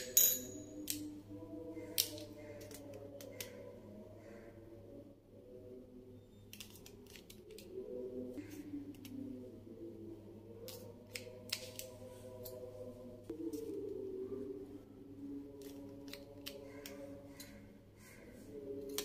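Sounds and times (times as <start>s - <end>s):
plastic tubes clicking: 1.9s - 3.6s, 10.6s - 12.6s.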